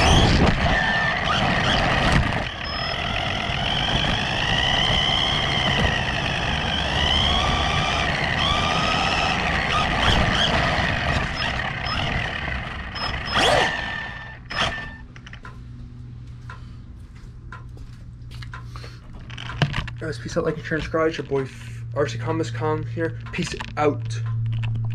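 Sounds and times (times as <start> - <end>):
electric motor whining: 0.0 - 15.4.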